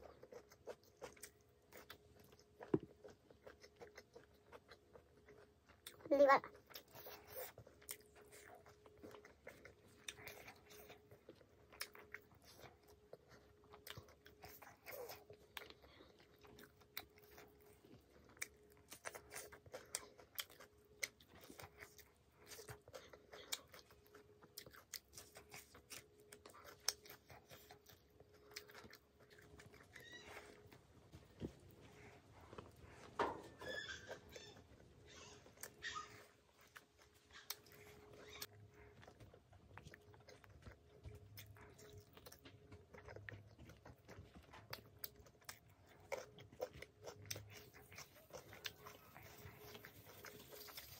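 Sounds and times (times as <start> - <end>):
person chewing food: 0.0 - 50.9.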